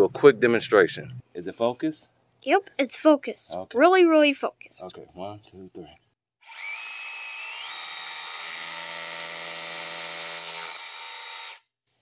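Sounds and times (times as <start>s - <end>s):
rotary drill boring concrete: 6.4s - 11.6s.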